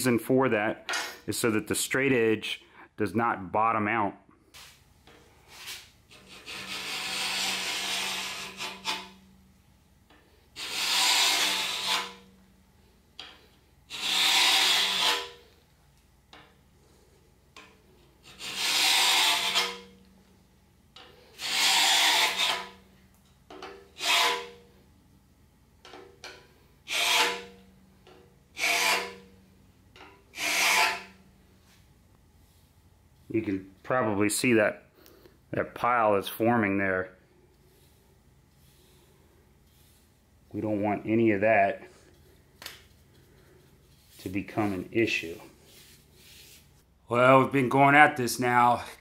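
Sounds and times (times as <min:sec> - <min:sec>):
scraper rasping on metal: 0:06.1 - 0:09.2, 0:10.6 - 0:12.3, 0:13.9 - 0:15.5, 0:18.2 - 0:19.9, 0:21.4 - 0:22.8, 0:23.9 - 0:24.6, 0:26.9 - 0:27.6, 0:28.6 - 0:29.3, 0:30.3 - 0:31.2.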